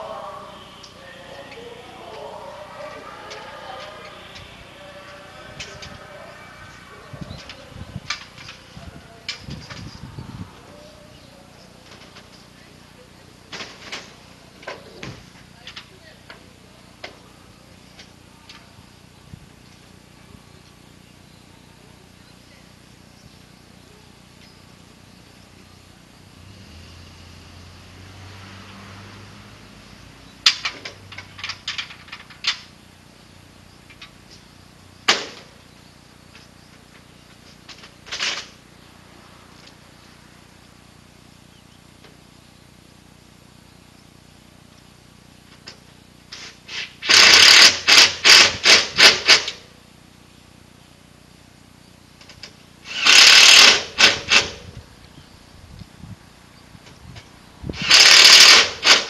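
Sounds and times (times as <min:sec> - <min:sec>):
power driver rapid pulses: 0:46.2 - 0:49.7, 0:52.1 - 0:54.8, 0:57.6 - 0:59.0.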